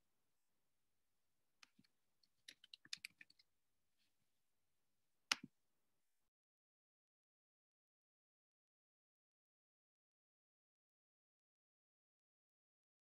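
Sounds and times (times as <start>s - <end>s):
computer keyboard typing: 2.5s - 3.4s.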